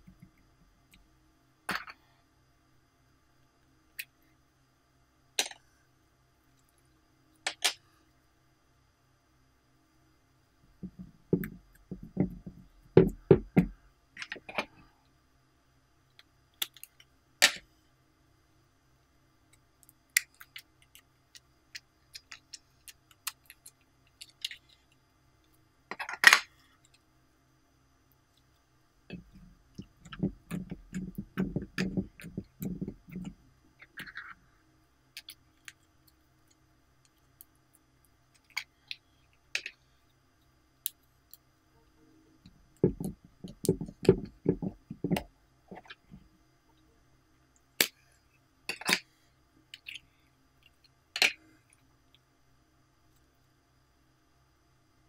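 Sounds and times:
plastic lids clicking and tapping: 29.1 - 34.2, 42.8 - 46.2.

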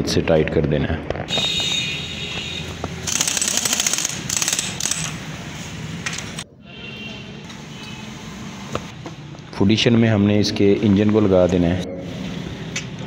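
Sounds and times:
pneumatic impact wrench rattling: 3.0 - 5.3.

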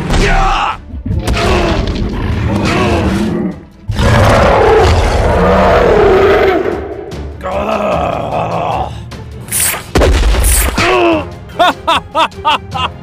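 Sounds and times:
monster growling roar: 1.3 - 6.8.

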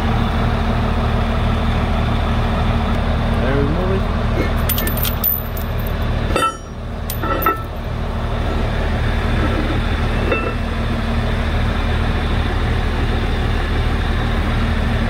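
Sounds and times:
engine idling: 0.0 - 15.0
metallic clinks: 4.5 - 7.8.

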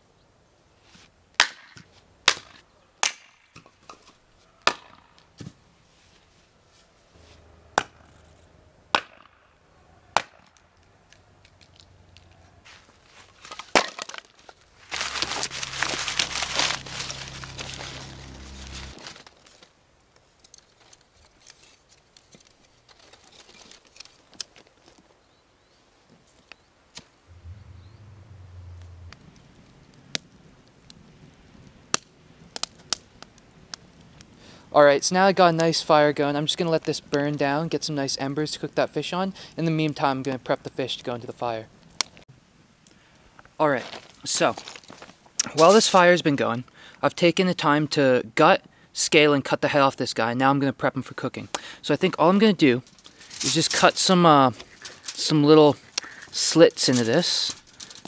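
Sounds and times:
axe chopping firewood: 1.4 - 3.7, 4.6 - 5.5, 8.9 - 9.4.

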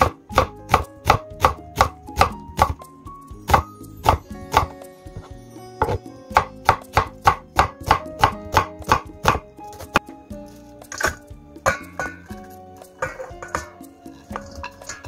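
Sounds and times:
knife chopping on wooden board: 0.0 - 2.8, 3.5 - 10.0.

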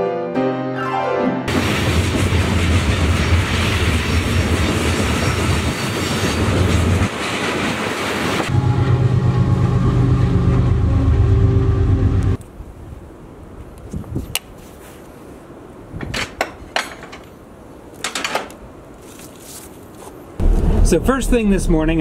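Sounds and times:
train wheels rolling on rails: 1.5 - 12.4
diesel locomotive engine drone: 1.5 - 12.8, 20.4 - 22.0.

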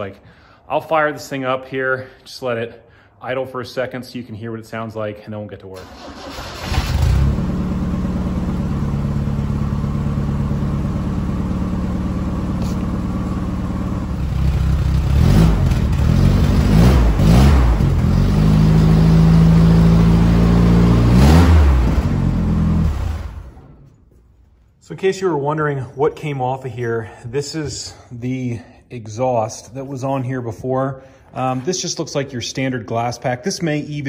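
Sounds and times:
car engine idling and revving: 6.0 - 23.9.

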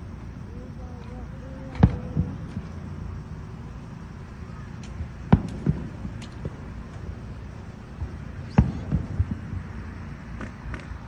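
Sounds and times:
low steady rumble: 0.0 - 11.0
distant firework booms: 1.7 - 2.9, 4.6 - 9.8.

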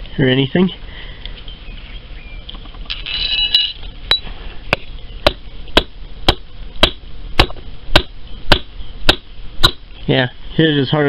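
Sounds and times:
metallic clink: 2.9 - 4.3.

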